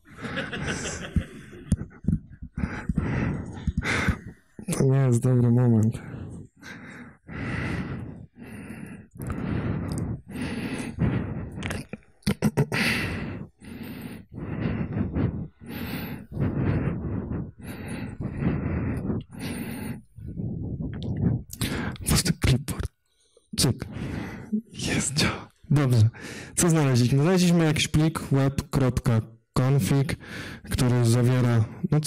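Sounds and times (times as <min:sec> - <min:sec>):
person breathing quickly: 0:00.0 - 0:04.7, 0:05.9 - 0:22.1, 0:23.1 - 0:26.6, 0:30.1 - 0:30.8.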